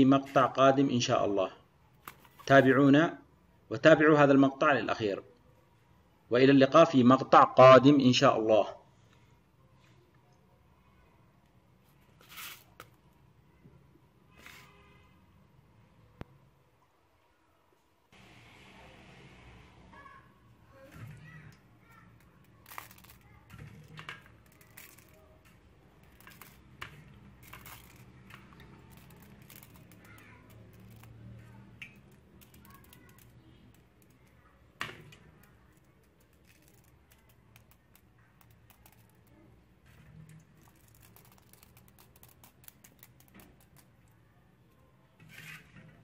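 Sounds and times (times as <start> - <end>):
faint irregular clicks: 21.4 - 44.9.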